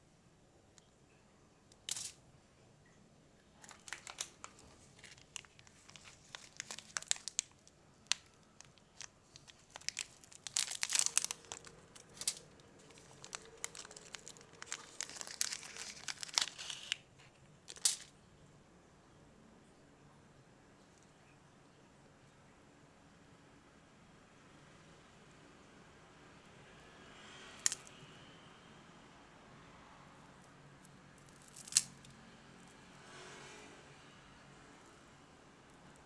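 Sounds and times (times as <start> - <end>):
plastic wrapper crinkling: 1.8 - 2.2, 3.6 - 18.1, 27.6 - 27.9, 31.2 - 32.1.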